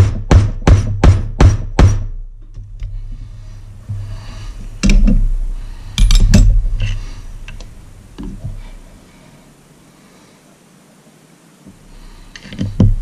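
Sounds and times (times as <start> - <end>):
metal clanks and clinks: 5.9 - 8.3.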